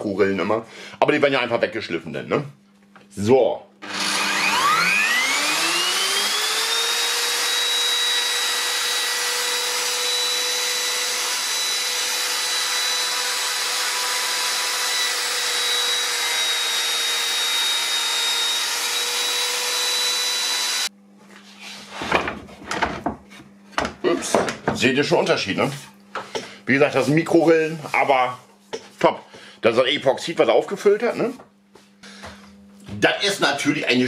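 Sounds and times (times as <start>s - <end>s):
router whining: 3.8s - 20.9s.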